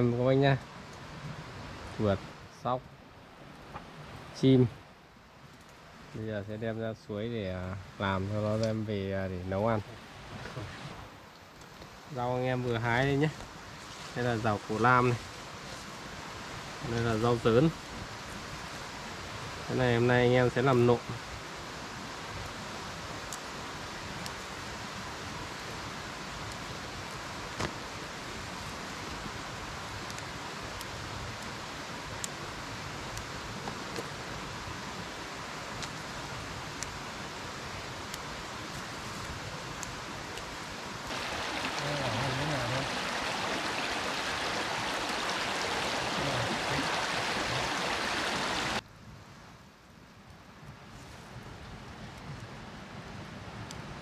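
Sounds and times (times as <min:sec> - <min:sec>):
stream water rushing: 0:11.9 - 0:48.8
stream water flowing: 0:37.2 - 0:48.8.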